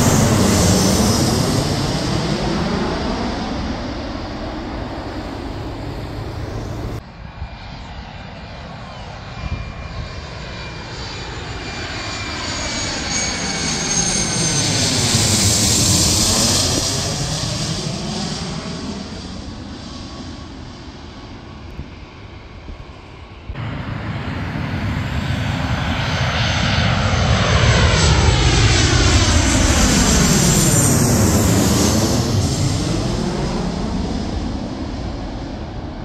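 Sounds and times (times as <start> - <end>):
high jet engine whine: 0.0 - 36.0
jet airliner flying overhead: 0.0 - 36.0.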